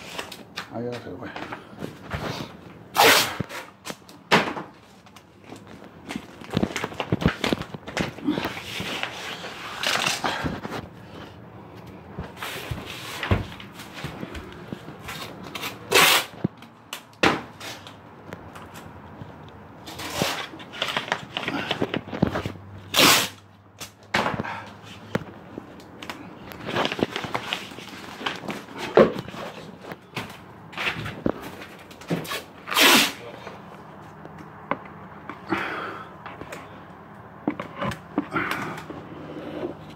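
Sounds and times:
plastic sheeting rustling and scraping: 0.0 - 0.4, 4.8 - 11.3, 26.5 - 30.0.

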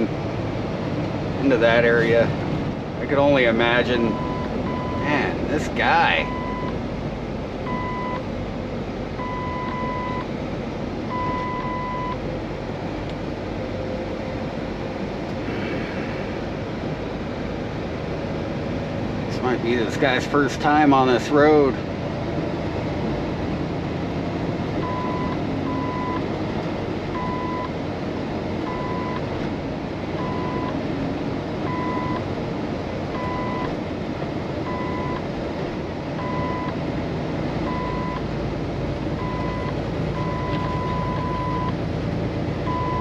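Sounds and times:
diesel engine and road noise drone: 0.0 - 43.0
electronic warning beep: 6.2 - 6.8, 7.7 - 8.2, 9.2 - 10.3, 11.1 - 12.2, 34.7 - 35.2, 37.7 - 38.2, 39.2 - 41.8, 42.7 - 43.0.

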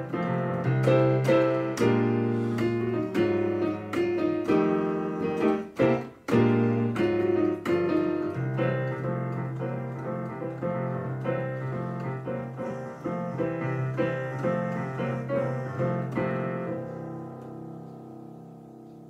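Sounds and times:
digital piano chords: 0.0 - 19.0.

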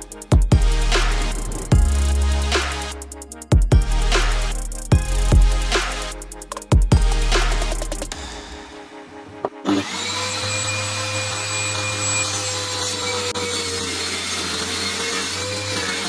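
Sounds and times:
saw cutting wood board: 9.3 - 16.0
table saw motor running: 9.6 - 16.0.

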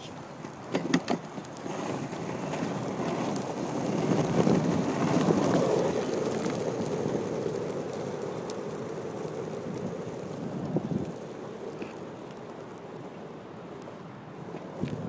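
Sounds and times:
rolling rumble over pavement: 0.0 - 15.0
wind rushing over microphone: 1.6 - 12.0, 14.3 - 15.0.

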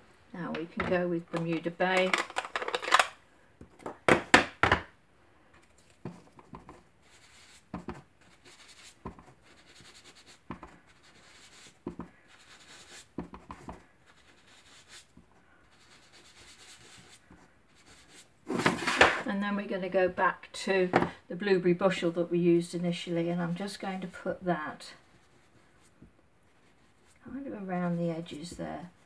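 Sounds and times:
plastic case clacking: 0.8 - 3.1
sponge dabbing and rubbing: 5.9 - 18.3, 25.0 - 27.2.

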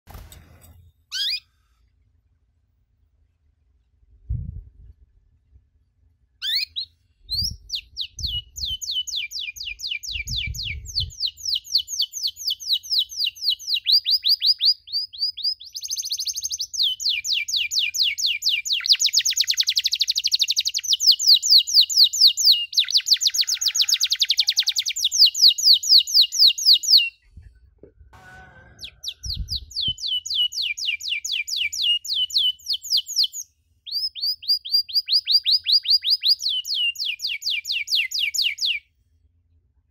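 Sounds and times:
canary singing chirps and trills: 1.1 - 1.5, 6.4 - 27.3, 28.8 - 38.8.

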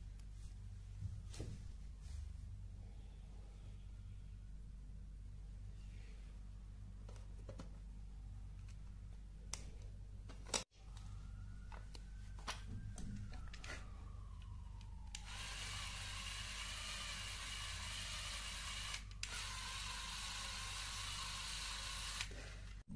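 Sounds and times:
electric motor whirring: 15.1 - 22.4.

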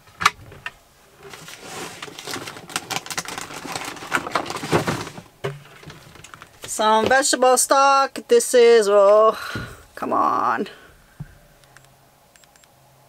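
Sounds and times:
containers and jars clattering: 1.2 - 6.8.

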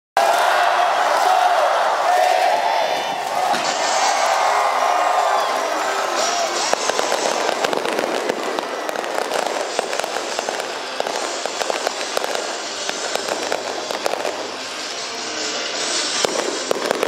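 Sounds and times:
fireworks popping: 3.2 - 17.0
rumble of explosions: 3.3 - 15.0, 15.7 - 17.0.

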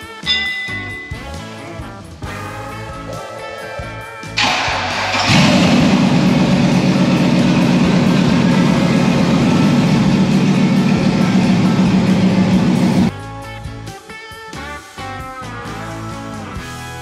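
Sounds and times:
truck engine starting: 3.1 - 13.1.

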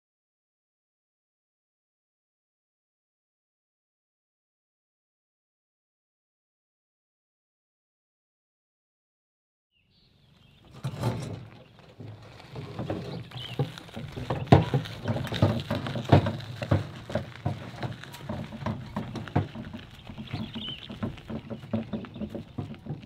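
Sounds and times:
wheelbarrow rolling over gravel: 10.3 - 23.0.

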